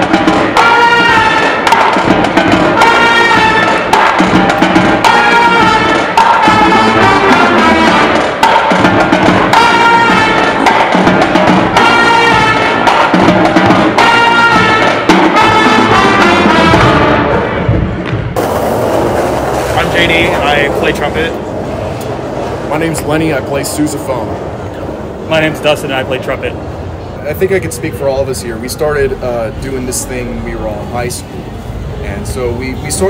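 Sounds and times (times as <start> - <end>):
drum beat: 0.0 - 21.6
brass band playing: 0.0 - 23.4.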